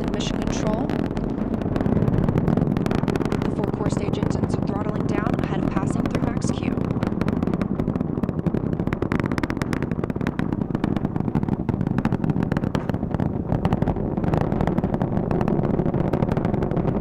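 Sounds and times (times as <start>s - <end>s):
rocket engines crackling rumble: 0.0s - 17.0s.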